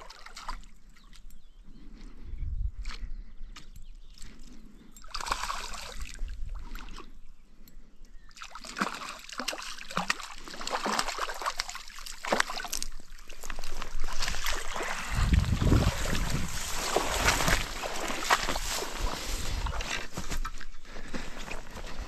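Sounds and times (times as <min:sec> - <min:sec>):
fish splashing in water: 0:05.0 - 0:06.8, 0:08.4 - 0:19.8.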